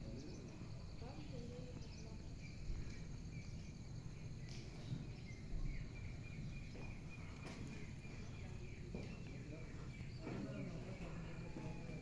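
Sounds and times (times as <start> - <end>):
low wind rumble: 0.0 - 11.6
faint insect chirping: 0.0 - 12.0.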